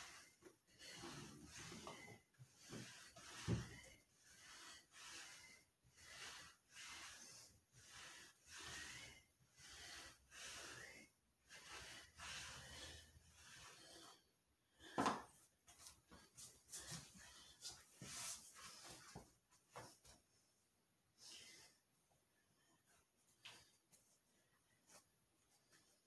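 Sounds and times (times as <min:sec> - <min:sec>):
man breathing heavily: 0:00.0 - 0:18.0.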